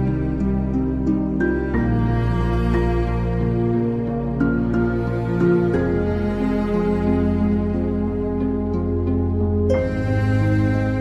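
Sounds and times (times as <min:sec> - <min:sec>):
soft instrumental music: 0:00.0 - 0:11.0.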